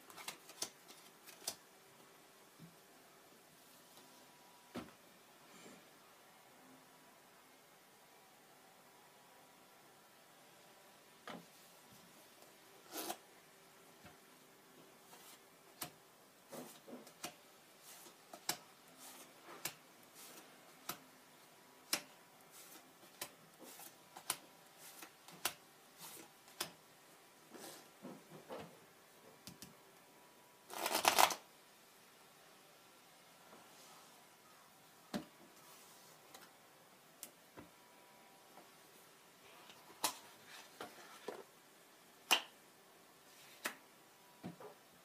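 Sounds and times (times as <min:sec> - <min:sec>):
deck of cards shuffled: 0:30.7 - 0:31.4.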